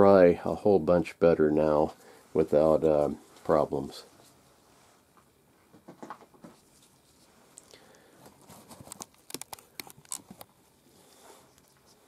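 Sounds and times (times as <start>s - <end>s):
wet crackles of handled skin: 8.6s - 10.5s.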